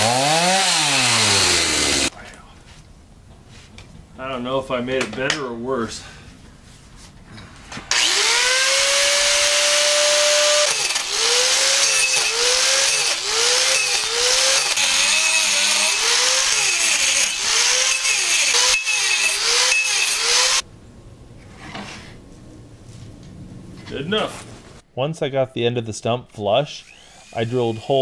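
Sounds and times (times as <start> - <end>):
angle grinder grinding wood: 0.0 - 2.1, 7.9 - 20.6, 26.8 - 28.0.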